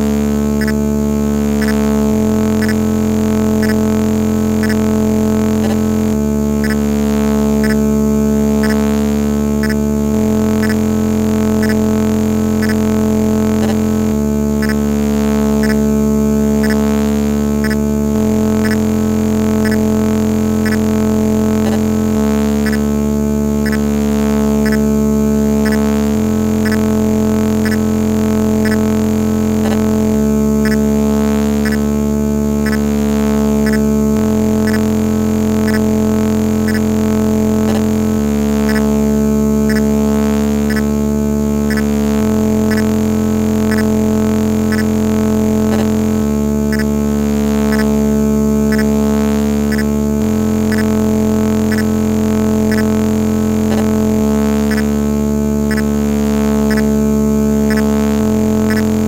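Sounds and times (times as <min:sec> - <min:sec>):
electronic drone: 0:00.0 - 0:59.0
faint regular ticks: 0:00.6 - 0:00.8, 0:01.6 - 0:01.9, 0:02.6 - 0:02.8, 0:03.6 - 0:03.9, 0:04.6 - 0:05.8, 0:06.6 - 0:06.9, 0:07.6 - 0:07.9, 0:08.6 - 0:08.9, 0:09.6 - 0:09.9, 0:10.6 - 0:10.9, 0:11.6 - 0:11.9, 0:12.6 - 0:12.9, 0:14.6 - 0:14.9, 0:15.6 - 0:15.9, 0:16.6 - 0:16.9, 0:17.6 - 0:17.9, 0:18.6 - 0:18.9, 0:19.6 - 0:19.9, 0:20.6 - 0:20.9, 0:22.6 - 0:22.9, 0:23.6 - 0:23.9, 0:24.6 - 0:24.9, 0:25.6 - 0:26.0, 0:26.6 - 0:26.9, 0:27.6 - 0:27.9, 0:28.6 - 0:29.0, 0:30.6 - 0:30.9, 0:31.6 - 0:31.9, 0:32.6 - 0:32.9, 0:33.6 - 0:33.9, 0:34.6 - 0:35.0, 0:35.7 - 0:35.9, 0:36.7 - 0:37.0, 0:38.6 - 0:39.0, 0:39.7 - 0:39.9, 0:40.6 - 0:41.0, 0:41.7 - 0:42.0, 0:42.7 - 0:43.0, 0:43.7 - 0:44.0, 0:44.7 - 0:45.0, 0:46.7 - 0:47.0, 0:47.7 - 0:48.0, 0:48.7 - 0:49.0, 0:49.7 - 0:50.0, 0:50.7 - 0:51.0, 0:51.7 - 0:52.0, 0:52.7 - 0:53.0, 0:54.7 - 0:55.0, 0:55.7 - 0:56.0, 0:56.7 - 0:56.9, 0:57.7 - 0:59.0.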